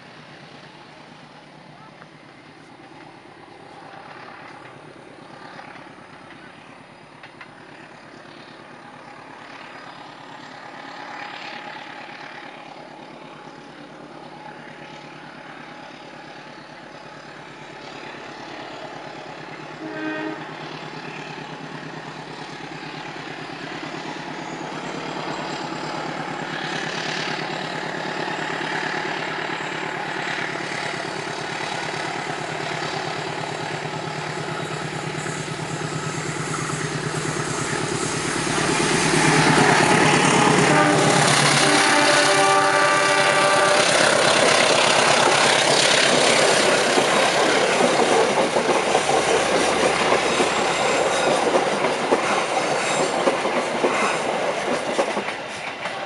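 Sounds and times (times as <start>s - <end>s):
locomotive engine drone: 0.0s - 56.0s
train horn toot: 19.8s - 20.6s, 39.8s - 44.6s.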